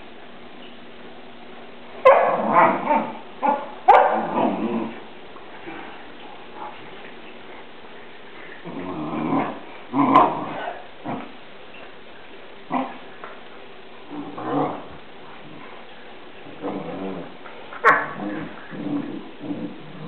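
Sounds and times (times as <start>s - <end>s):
dogs growling: 2.4s - 11.4s, 12.7s - 13.1s, 14.0s - 20.0s.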